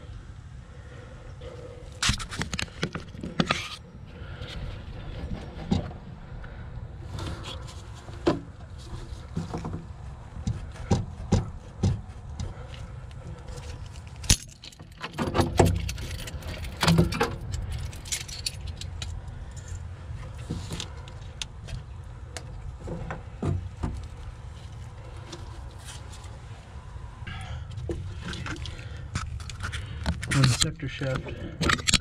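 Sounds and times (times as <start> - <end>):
metal tools clinking and rattling: 14.2 - 19.2.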